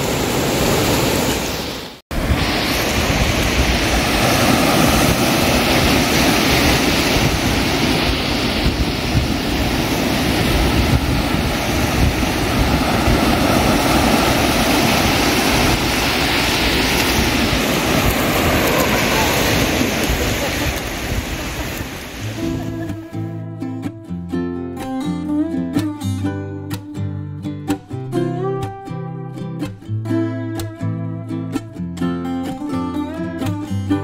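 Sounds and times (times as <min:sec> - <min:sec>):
ocean surf washing: 0:00.0 - 0:23.3
wind buffeting microphone: 0:02.1 - 0:23.1.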